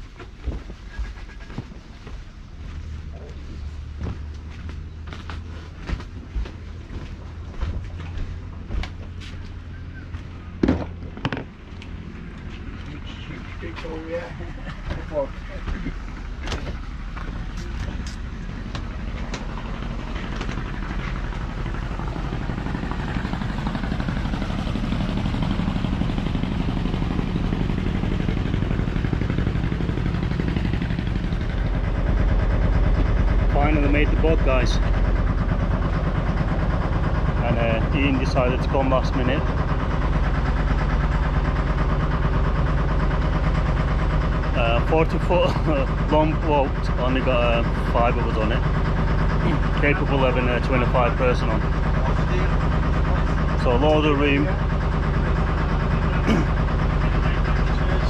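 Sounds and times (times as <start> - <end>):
knocks and footsteps on deck: 0.0 - 12.8, 14.6 - 21.4
boat engine rumble: 0.0 - 58.0.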